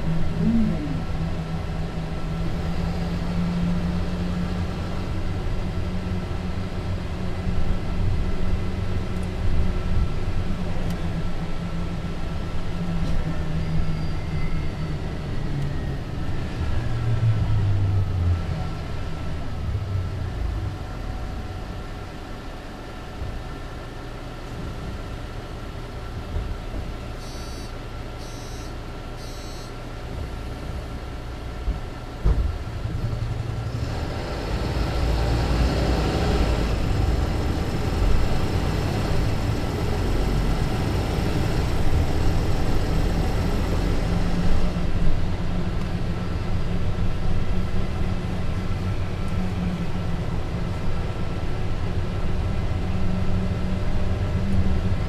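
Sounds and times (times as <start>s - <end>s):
bus engine idling and accelerating: 0.0s - 55.0s
short beeps: 27.2s - 29.8s.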